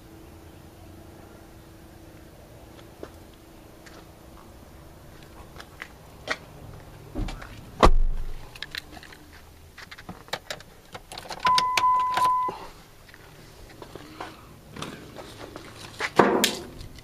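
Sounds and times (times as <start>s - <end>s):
heavy thump: 7.2s - 8.3s
handling clicks and knocks: 8.5s - 12.4s
dashboard warning beep: 11.4s - 12.7s.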